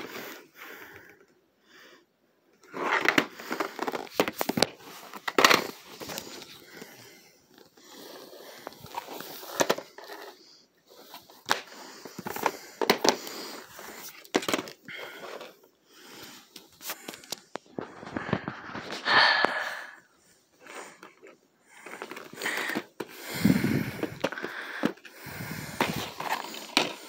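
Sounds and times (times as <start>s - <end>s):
plastic rubbing and scraping: 2.6s - 19.7s, 20.5s - 27.0s
plastic cases clicking: 11.4s - 15.6s, 21.0s - 27.0s.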